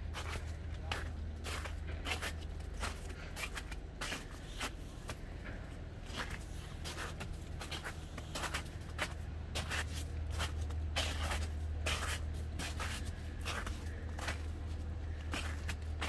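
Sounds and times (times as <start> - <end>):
steady low hum: 0.0 - 16.0
footsteps crunching in snow: 6.1 - 16.0.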